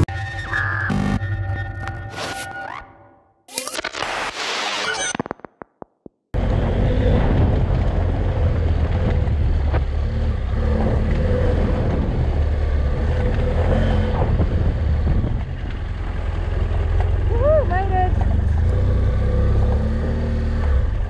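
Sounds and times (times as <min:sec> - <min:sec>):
motorcycle engine running: 0:06.4 - 0:21.0.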